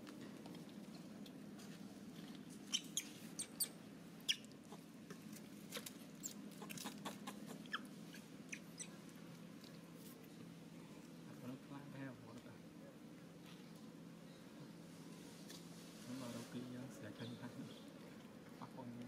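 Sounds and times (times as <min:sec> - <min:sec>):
steady low hum: 0:00.0 - 0:19.0
high-pitched animal squeaks: 0:02.7 - 0:04.5, 0:06.2 - 0:09.0.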